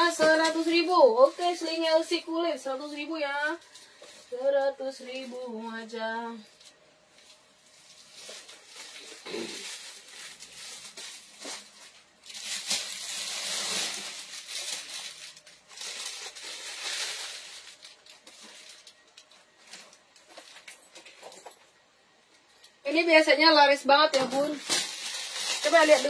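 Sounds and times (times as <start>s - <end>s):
packaging rustling and crinkling: 0.0s - 2.2s, 6.4s - 21.6s, 24.1s - 26.0s.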